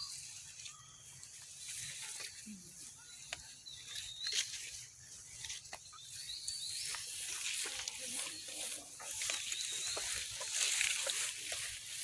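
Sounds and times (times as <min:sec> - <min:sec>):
steady outdoor hiss: 0:00.0 - 0:12.0
undergrowth rustling and snapping: 0:03.2 - 0:12.0.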